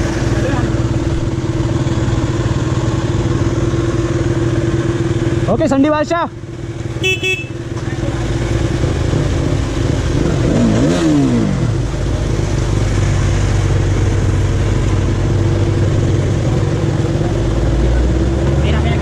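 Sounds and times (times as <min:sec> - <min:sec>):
motorcycle engine idling: 0:00.0 - 0:18.0
engine revving: 0:07.8 - 0:19.0.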